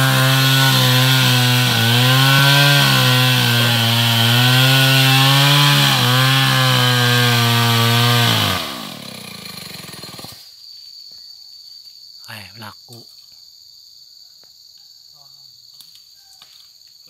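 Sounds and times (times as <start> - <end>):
chainsaw running at high revs: 0.0 - 10.4.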